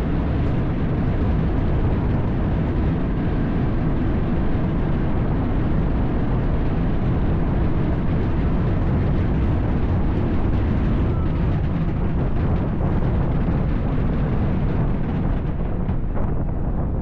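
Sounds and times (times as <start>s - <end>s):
fireworks barrage rumbling: 6.3s - 17.0s.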